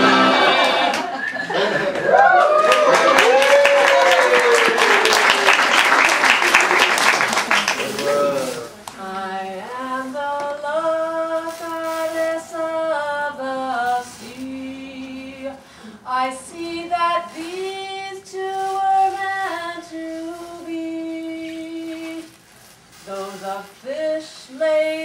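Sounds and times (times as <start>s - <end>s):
woman singing slow melody: 9.0s - 22.3s, 23.1s - 25.0s
woman breathing: 15.6s - 16.1s.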